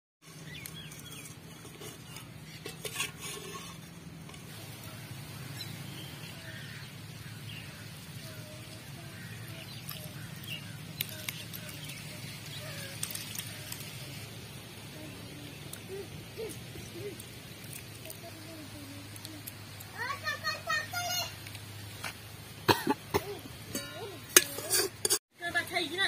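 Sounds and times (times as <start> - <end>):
small birds chirping: 0.2 - 3.1, 4.4 - 21.9.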